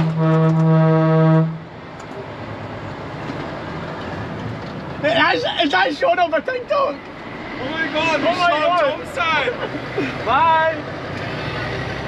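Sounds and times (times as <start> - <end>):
truck air horn blast: 0.0 - 1.6
road noise: 0.0 - 12.0
truck engine rumble: 0.0 - 12.0.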